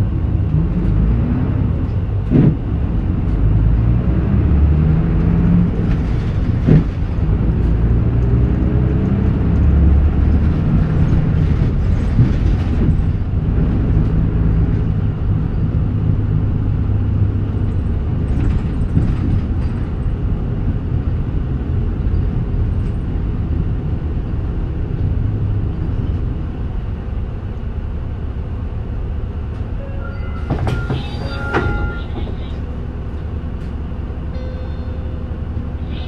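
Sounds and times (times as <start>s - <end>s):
bus engine drone: 0.0s - 36.0s
high ringing tones: 29.8s - 32.6s, 34.3s - 36.0s.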